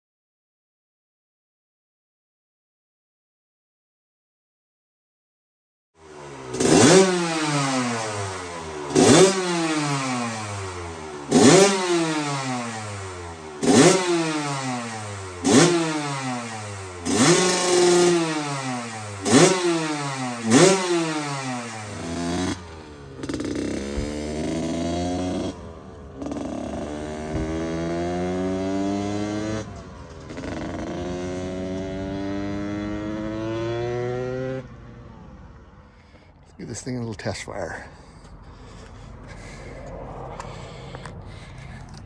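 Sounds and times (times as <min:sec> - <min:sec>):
two-stroke motorcycle engine revving: 0:06.0 - 0:35.3.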